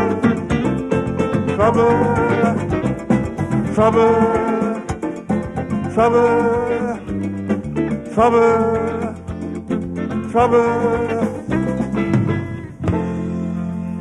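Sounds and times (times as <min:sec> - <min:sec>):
calypso band playing: 0:00.0 - 0:14.0.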